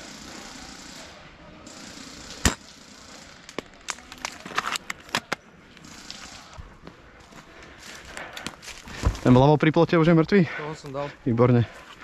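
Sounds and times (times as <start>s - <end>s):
airsoft rifle firing crack: 2.2s - 3.6s.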